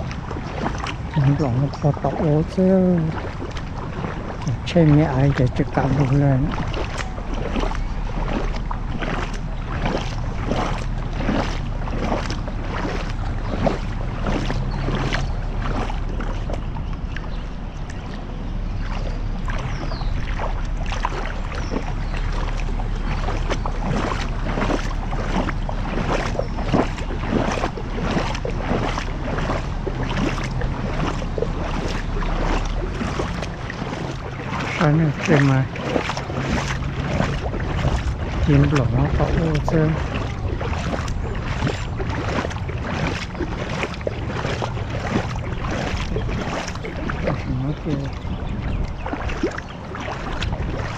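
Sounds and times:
low engine hum: 0:00.0 - 0:50.9
rushing rain water: 0:00.0 - 0:50.9.

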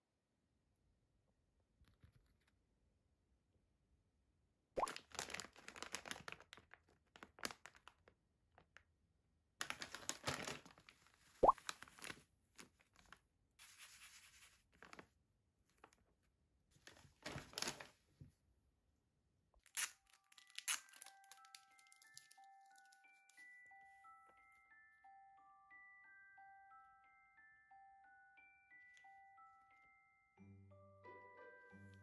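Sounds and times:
packaging crinkling: 0:04.8 - 0:08.1, 0:09.6 - 0:13.2, 0:14.1 - 0:15.0, 0:16.9 - 0:17.9, 0:19.7 - 0:23.4
soft chime-like music: 0:20.2 - 0:32.0.

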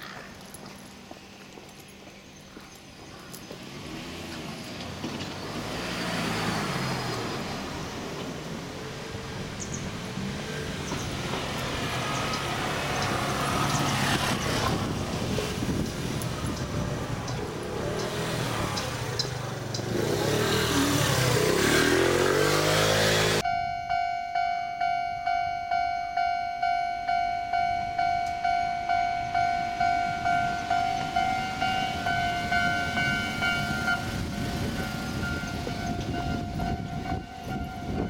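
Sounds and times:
train wheel and rail rumble: 0:00.0 - 0:21.8, 0:25.1 - 0:38.0
level crossing warning alarm: 0:23.4 - 0:38.0.

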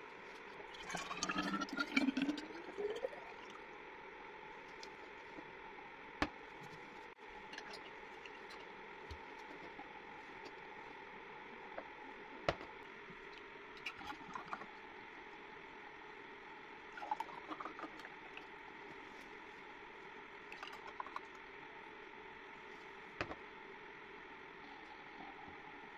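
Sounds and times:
thick juice pouring into glass: 0:00.6 - 0:03.7, 0:06.6 - 0:10.4, 0:16.9 - 0:19.0, 0:20.5 - 0:21.3.

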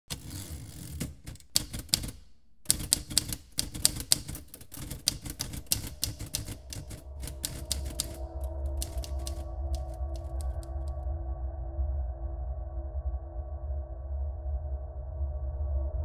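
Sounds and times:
typewriter keys clacking: 0:00.0 - 0:10.9.

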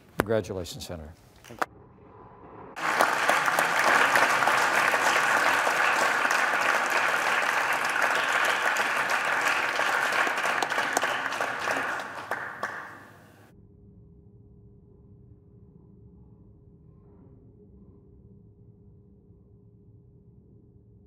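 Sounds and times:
crowd applauding: 0:02.8 - 0:13.4.

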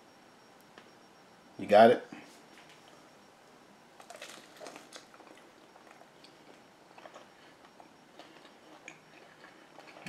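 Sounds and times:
person chewing softly: 0:04.0 - 0:10.0.

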